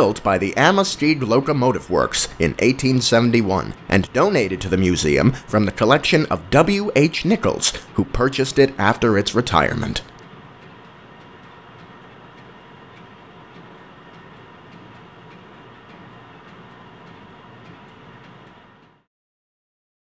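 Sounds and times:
faint regular ticking: 0.0s - 19.0s.

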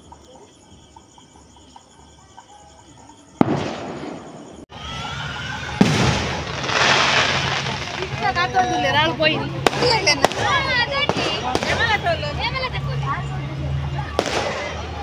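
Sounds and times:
steady background noise: 0.0s - 15.0s
firecracker bangs: 3.4s - 4.7s, 5.6s - 8.6s, 14.1s - 15.0s.

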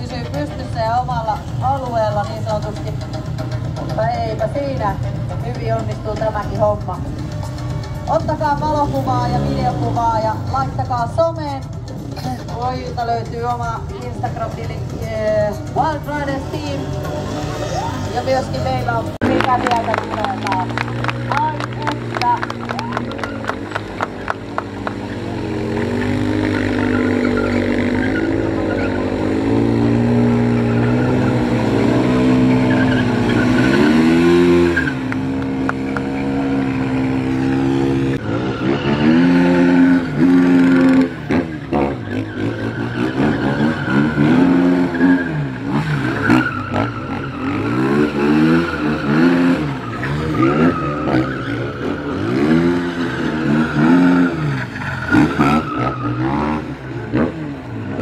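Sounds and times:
motorcycle engines revving: 0.0s - 58.0s
tyre squeal: 22.7s - 37.2s, 38.2s - 56.6s.

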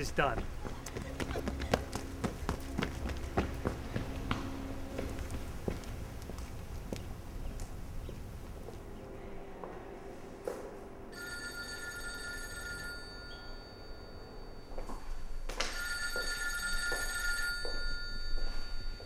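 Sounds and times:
footsteps on stone floor: 0.3s - 8.9s
telephone ringing: 11.1s - 19.0s.

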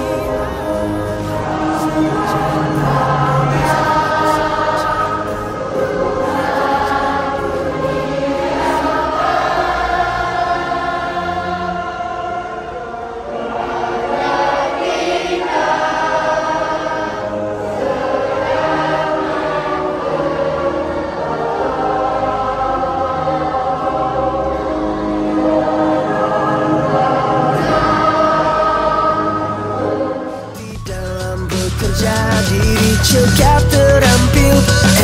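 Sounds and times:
choir singing: 0.0s - 35.0s
instrumental backing with bass line: 30.6s - 35.0s.

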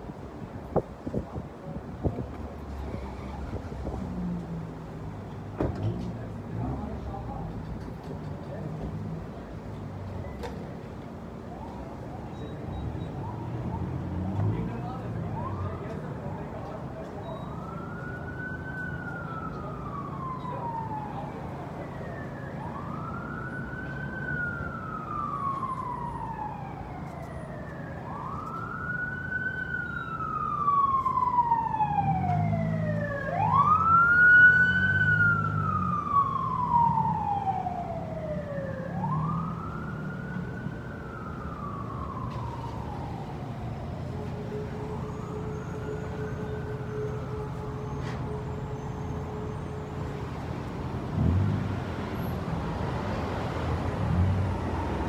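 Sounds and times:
wind noise: 0.0s - 4.0s
emergency siren wailing: 9.0s - 55.0s.

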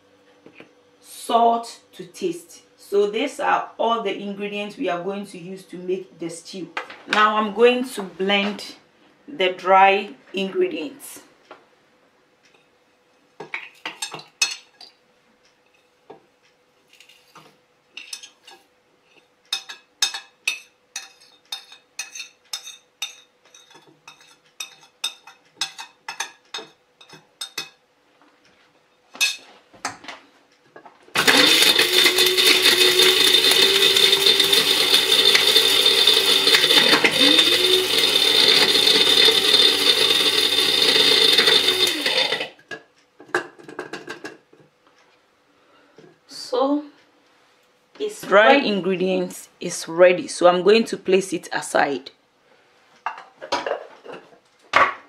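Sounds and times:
spice grinder motor: 31.2s - 42.6s.

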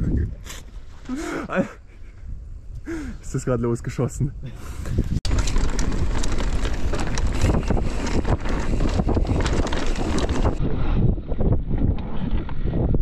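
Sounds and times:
wind buffeting microphone: 4.3s - 13.0s
bike rattling and knocking: 5.2s - 10.6s.

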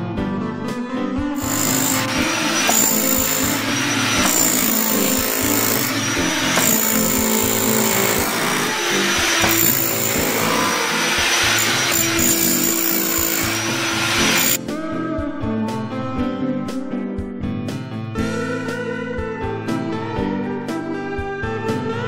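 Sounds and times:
power tool digging concrete: 1.4s - 14.6s.

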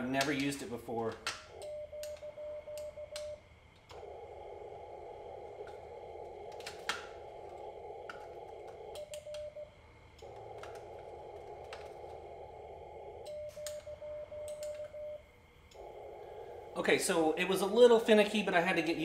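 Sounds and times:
morse code beeps: 1.5s - 3.5s.

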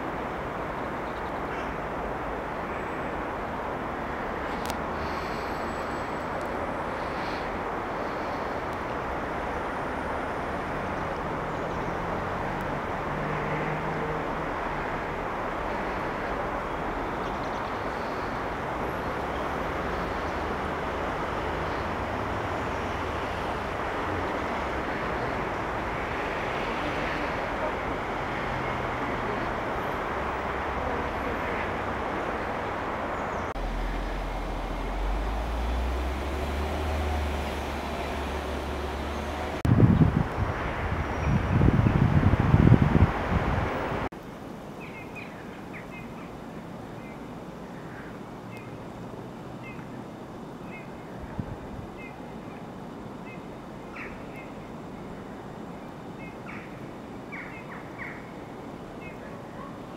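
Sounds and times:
distant road traffic: 0.0s - 59.9s
low engine hum: 18.4s - 44.1s.

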